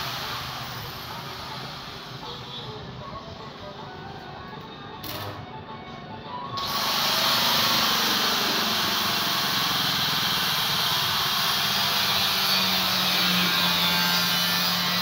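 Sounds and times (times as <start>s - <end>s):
machine hissing: 0.0s - 2.3s, 6.6s - 13.4s.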